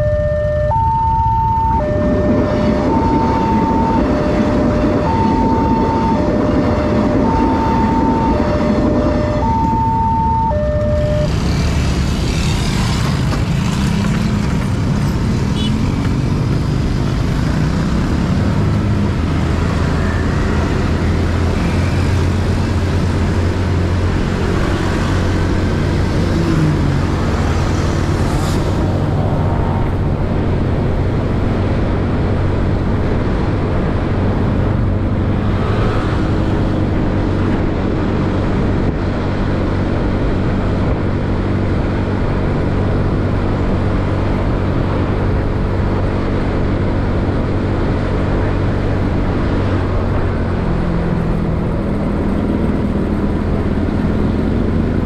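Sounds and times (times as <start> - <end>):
road traffic: 0.0 - 55.0.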